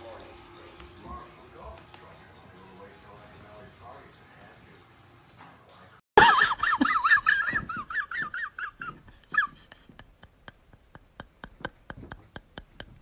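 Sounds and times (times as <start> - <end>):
high-pitched wobbling laugh: 6.2 - 13.0.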